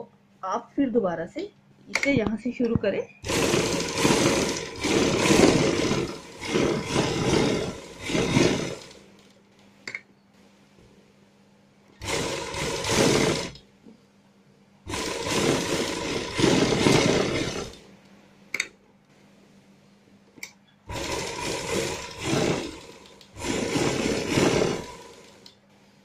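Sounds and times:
sewing machine stitching: 0:03.2 - 0:09.3, 0:12.0 - 0:13.6, 0:14.9 - 0:17.9, 0:20.9 - 0:25.5.

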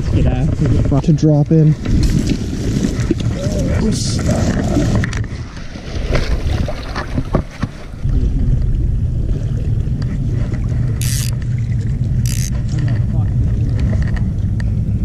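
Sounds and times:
wind rumbling on microphone: 0:00.0 - 0:15.0
creek flowing: 0:10.4 - 0:14.0.

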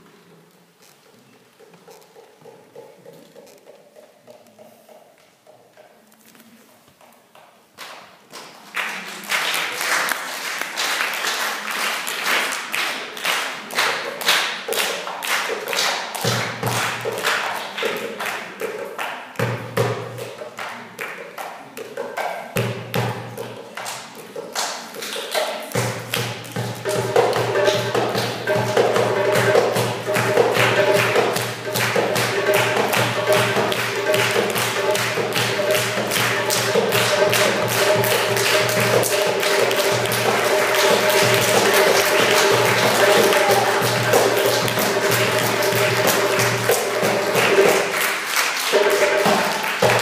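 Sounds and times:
hand drum played fast: 0:16.2 - 0:18.8, 0:25.7 - 0:50.0.

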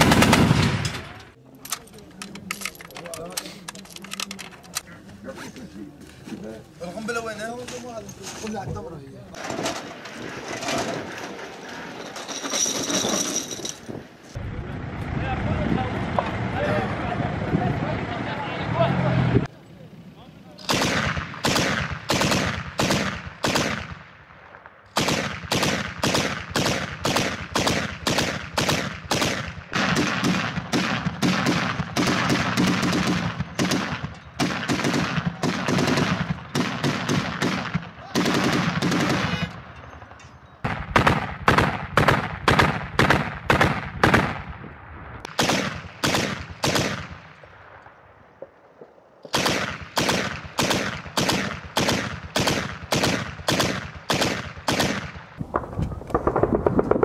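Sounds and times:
heavy machine gun firing: 0:00.0 - 0:01.2, 0:20.7 - 0:24.0, 0:25.0 - 0:39.5, 0:49.4 - 0:57.0.

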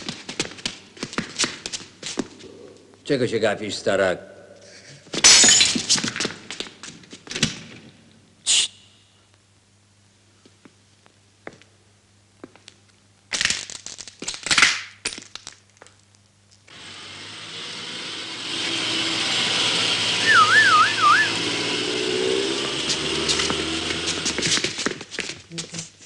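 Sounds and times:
police car engine: 0:16.9 - 0:24.6
police siren warble: 0:20.2 - 0:21.6
sharp knocks and scuffs: 0:22.6 - 0:25.9.

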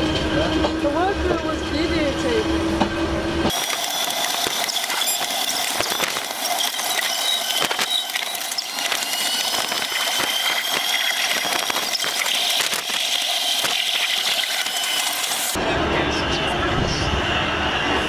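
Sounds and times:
electric railway car whine: 0:00.0 - 0:18.0.

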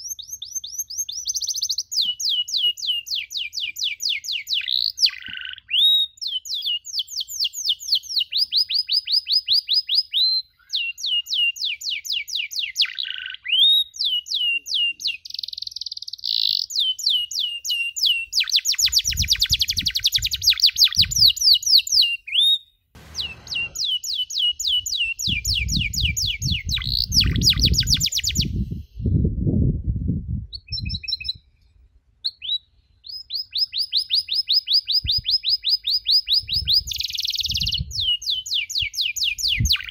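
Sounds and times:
canary singing trills: 0:00.0 - 0:28.9
low rumble: 0:23.0 - 0:23.9.

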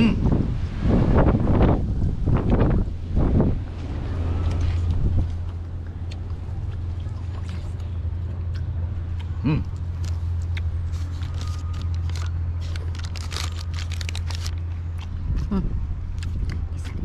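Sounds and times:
short vocal sound: 0:00.0 - 0:00.4, 0:09.3 - 0:09.8
low rumble: 0:00.0 - 0:17.0
wet chewing smacks and clicks: 0:04.6 - 0:15.5, 0:16.1 - 0:17.0.

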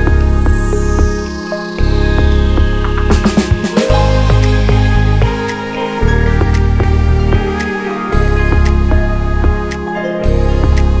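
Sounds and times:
electronic music with deep bass: 0:00.0 - 0:11.0.

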